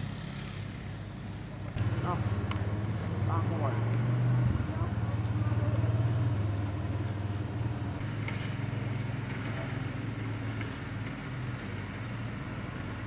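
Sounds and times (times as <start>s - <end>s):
fire truck engine humming: 0.0s - 13.0s.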